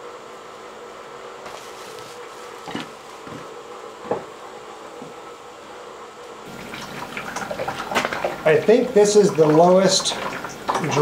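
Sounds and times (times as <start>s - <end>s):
light knocks and clunks: 2.7s - 4.3s.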